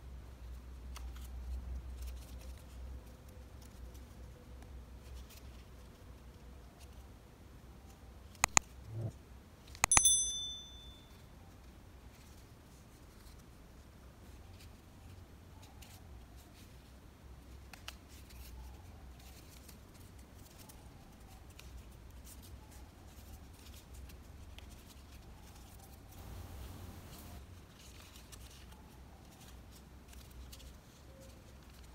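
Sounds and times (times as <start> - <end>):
button click: 8.4 - 9.1, 9.8 - 10.8
bright bell ding: 9.8 - 11.1.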